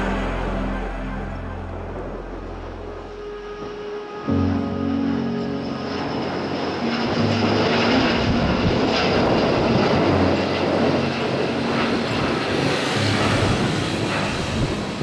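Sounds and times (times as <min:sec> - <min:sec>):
jet engine roar: 0:00.0 - 0:15.0.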